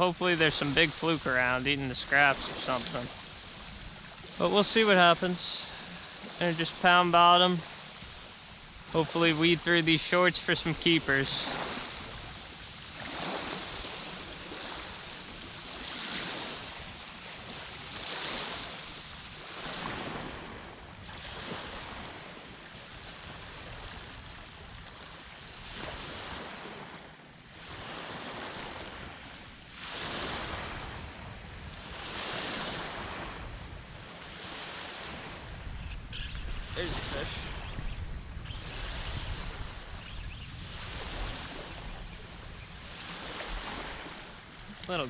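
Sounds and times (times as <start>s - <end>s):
small waves washing on sand: 0.0s - 45.0s
wind on microphone: 29.8s - 44.9s.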